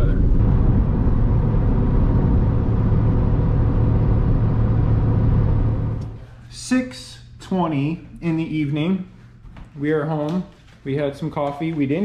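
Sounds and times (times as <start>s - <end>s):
car engine and road noise: 0.0s - 6.2s
air conditioning blowing: 0.0s - 12.0s
constant low hum: 0.0s - 12.0s.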